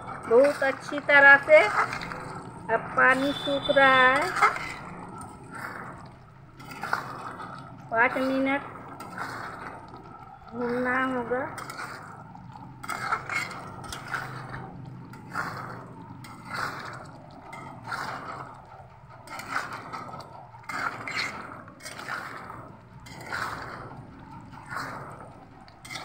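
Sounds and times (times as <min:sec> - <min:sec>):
metal spatula scraping a pan: 0:00.0 - 0:26.0.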